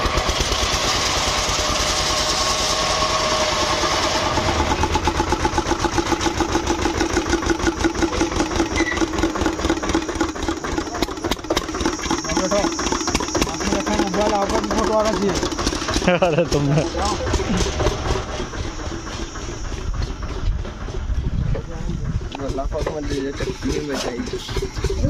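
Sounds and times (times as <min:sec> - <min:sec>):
engine running: 0:00.0 - 0:25.0
hiss: 0:17.6 - 0:20.7.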